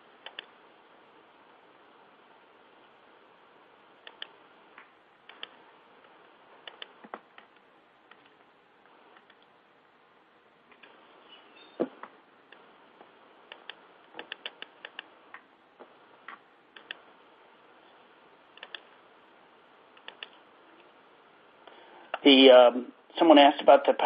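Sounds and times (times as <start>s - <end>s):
keyboard and mouse clicking: 0.2s - 0.5s, 4.0s - 4.3s, 5.3s - 5.6s, 6.6s - 8.4s, 13.5s - 15.1s, 16.8s - 17.0s, 18.6s - 18.9s, 20.0s - 20.4s.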